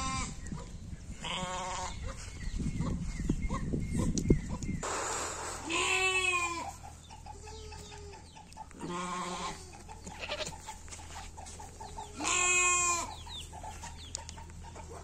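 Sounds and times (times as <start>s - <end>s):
sheep bleating: 5.6s - 6.7s, 8.8s - 9.6s, 10.2s - 10.6s, 12.2s - 13.1s.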